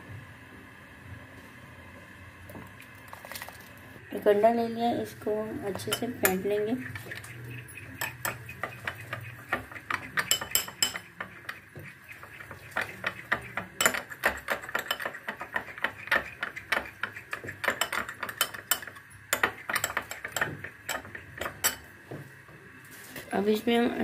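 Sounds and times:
spoon clinking against glass bowl: 7.0 - 11.6, 12.7 - 21.9.

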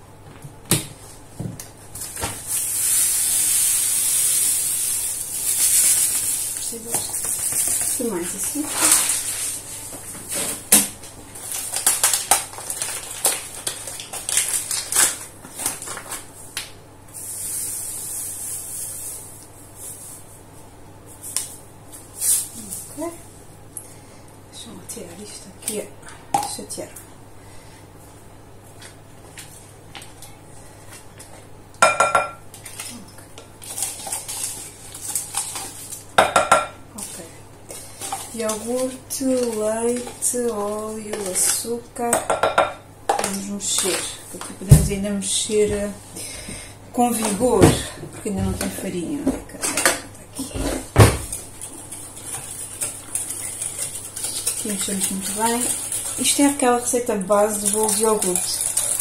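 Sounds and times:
sugar bag crinkling: 2.0 - 9.9, 11.0 - 16.4, 32.6 - 36.1, 36.9 - 41.8, 51.2 - 59.0
sugar pouring into plastic pot: 2.6 - 6.8, 52.4 - 59.0.

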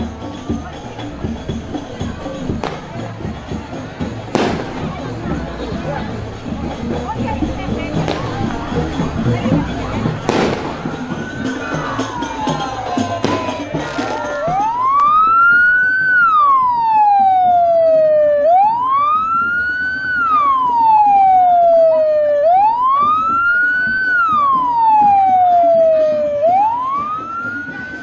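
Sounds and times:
police siren wailing: 8.0 - 28.0.

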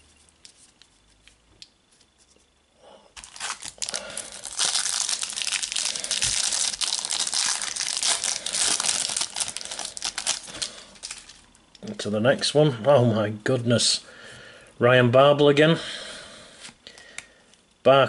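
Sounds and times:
foil packet crinkling and tearing: 3.2 - 11.5.

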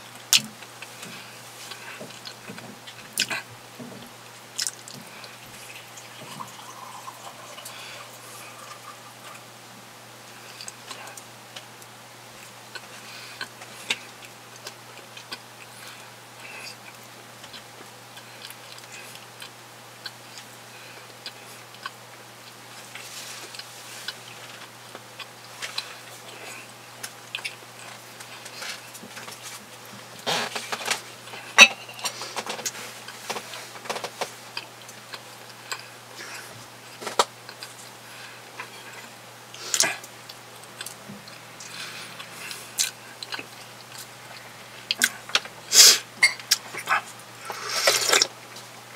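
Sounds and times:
steady low hum: 0.0 - 48.9
closed-mouth chewing: 12.4 - 29.6, 34.5 - 48.3.

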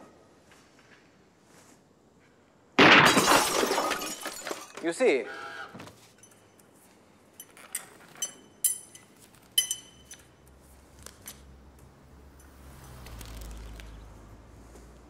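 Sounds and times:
light ringing clinks: 6.2 - 6.7, 7.3 - 10.5.

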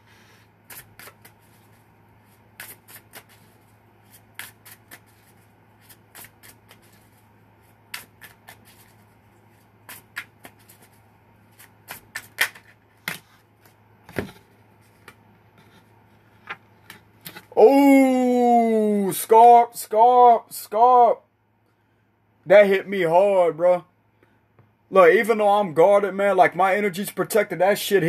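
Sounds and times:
cards being shuffled: 0.7 - 17.5.

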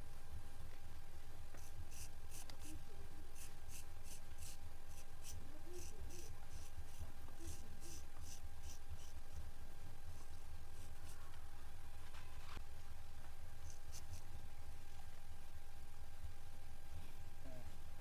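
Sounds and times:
razor scraping hair off scalp: 3.4 - 9.1.

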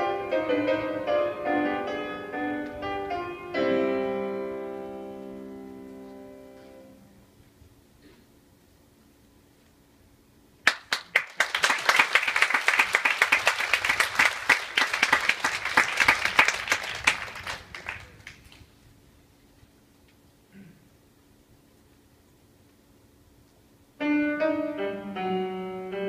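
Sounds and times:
audience applauding: 10.6 - 18.6.

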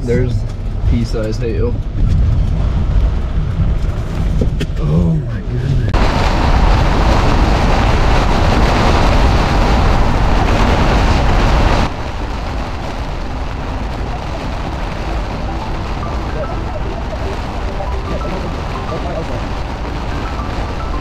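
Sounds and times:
road and wind noise: 0.0 - 21.0
rain and hail pelting car roof: 6.0 - 21.0.

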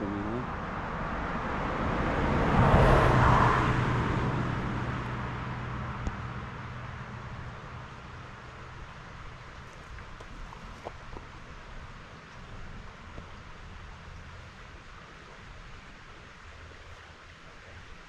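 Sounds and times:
car driving past: 0.4 - 7.5.

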